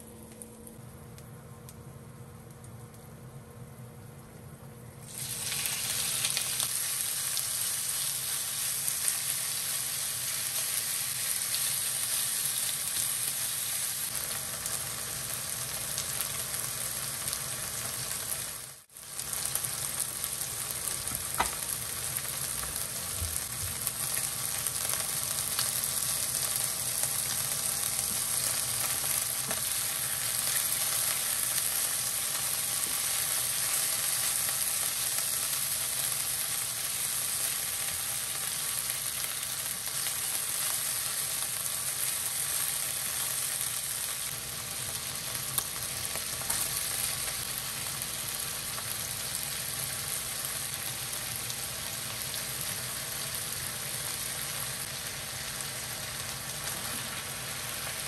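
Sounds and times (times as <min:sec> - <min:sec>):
chicken sizzling in hot oil: 0:05.0 - 0:58.0.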